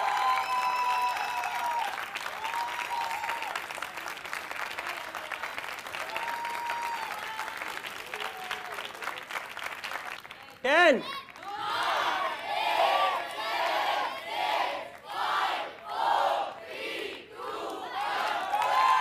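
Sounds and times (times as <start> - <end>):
audience clapping: 0.0 - 12.2, 17.0 - 19.0.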